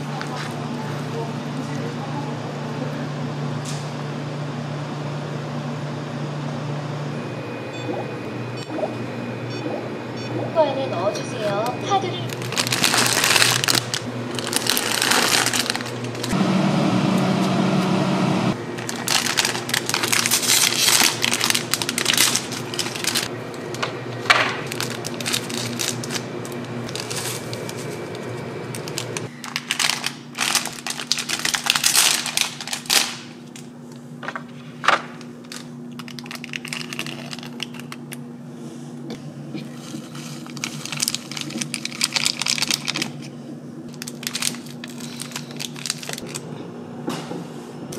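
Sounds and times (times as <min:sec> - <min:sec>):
steady low hum: 0:00.0 - 0:31.1
plastic packaging crinkling: 0:12.2 - 0:16.4, 0:18.7 - 0:33.7, 0:35.4 - 0:38.1, 0:39.9 - 0:43.3, 0:43.9 - 0:46.4
sachets tearing open: 0:12.3 - 0:16.4, 0:18.8 - 0:23.7, 0:24.6 - 0:33.3, 0:35.4 - 0:38.1, 0:40.2 - 0:43.2, 0:43.9 - 0:46.4.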